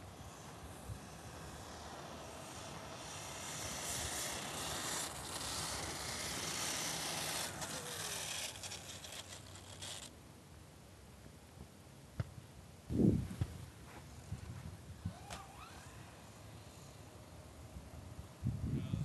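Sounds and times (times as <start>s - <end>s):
wind rushing over microphone: 12.9s - 13.6s, 17.8s - 19.0s.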